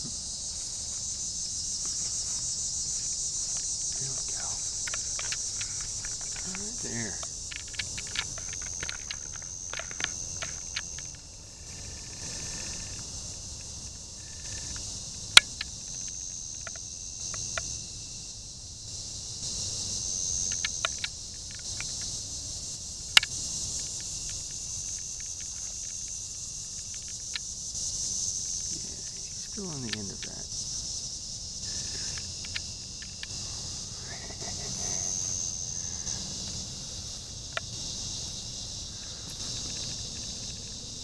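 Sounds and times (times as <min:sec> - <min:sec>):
insect chorus trilling: 0:00.0 - 0:41.0
small ticks: 0:00.0 - 0:41.0
sharp clicks: 0:04.2 - 0:11.2, 0:29.6 - 0:30.4.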